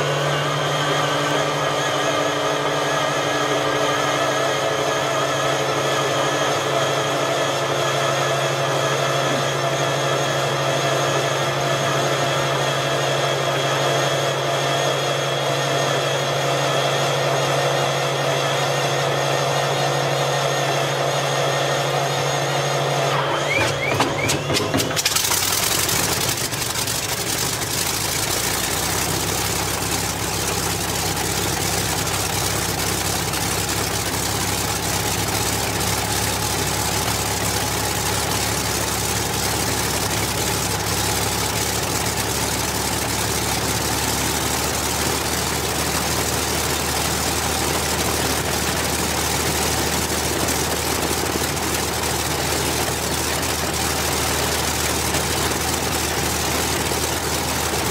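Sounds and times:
aircraft engine idling: 21.9 - 57.9.

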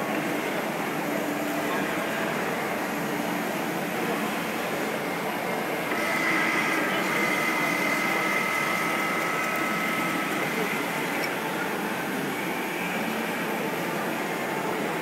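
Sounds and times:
two-tone high machine whine: 0.0 - 14.8
steady background hum: 0.0 - 15.0.

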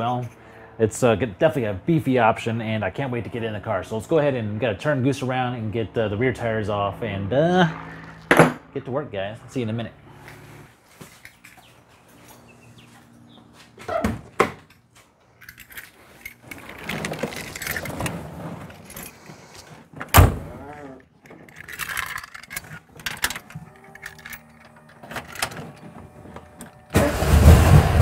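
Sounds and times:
car engine starting and running: 0.1 - 10.7, 15.7 - 28.0
keys jangling: 14.7 - 19.8, 21.1 - 25.8.

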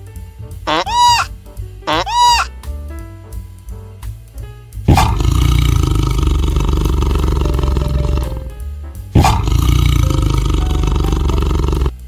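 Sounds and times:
large animal roaring: 4.9 - 8.5, 9.2 - 12.0.

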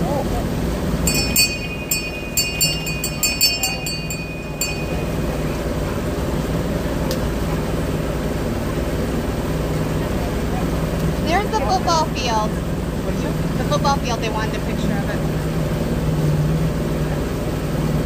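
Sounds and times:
boat engine running: 0.0 - 18.0
metallic clinks: 1.1 - 5.8.

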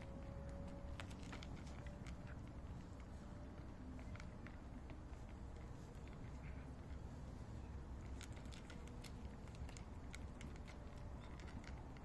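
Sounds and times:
cat crunching dry kibble: 0.0 - 12.0.

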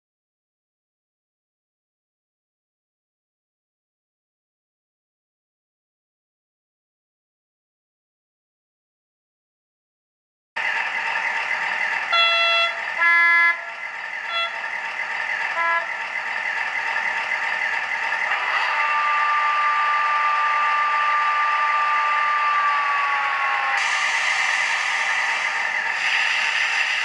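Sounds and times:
model diesel engine sound: 10.6 - 27.0
air compressor whine: 10.7 - 27.0
short horn toots: 12.1 - 13.7, 14.3 - 14.6
locomotive horn blasts: 12.1 - 14.7, 15.5 - 16.0, 18.4 - 22.5.

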